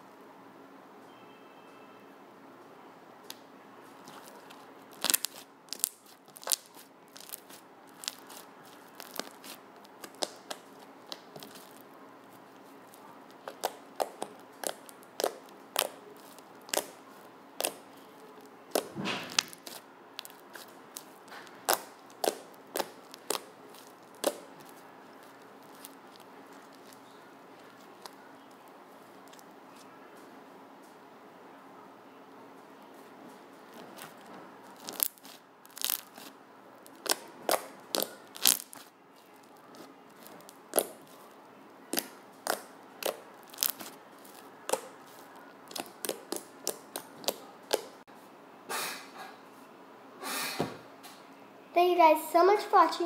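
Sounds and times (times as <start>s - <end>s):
slime popping and clicking: 18.7s - 27.0s, 34.8s - 38.9s, 39.7s - 41.1s, 41.9s - 44.9s.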